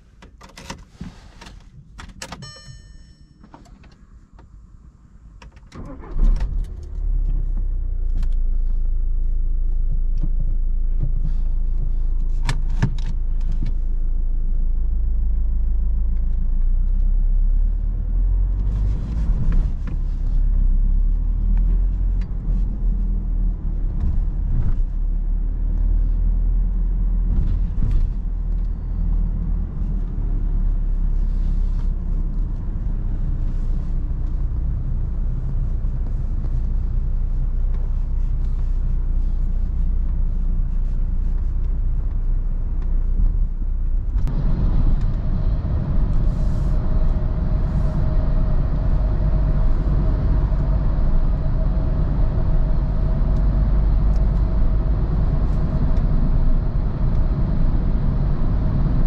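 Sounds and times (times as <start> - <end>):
diesel engine starting and idling: 5.6 - 9.3, 43.5 - 59.0.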